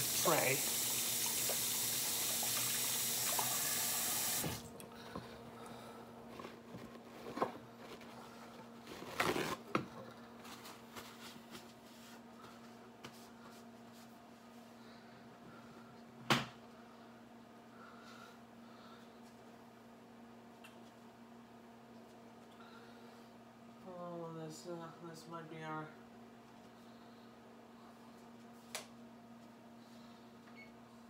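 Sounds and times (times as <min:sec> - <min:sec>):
faucet running: 0:00.0 - 0:04.7.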